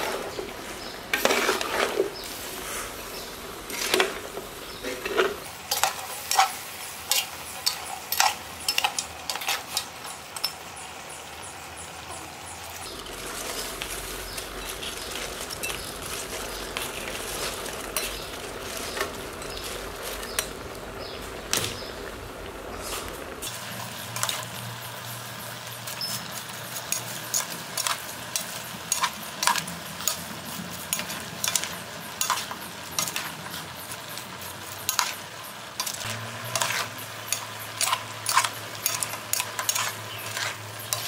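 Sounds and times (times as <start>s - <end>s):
metal ladle scraping pot: 0.0s - 9.8s, 35.8s - 41.0s
faint sizzle: 0.0s - 41.0s.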